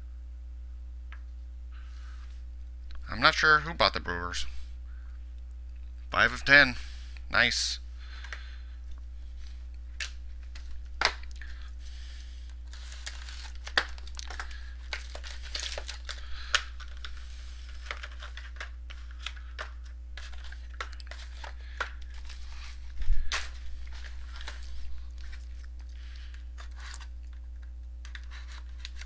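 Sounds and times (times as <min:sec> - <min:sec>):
plastic packaging crinkling: 0:08.1 - 0:29.0.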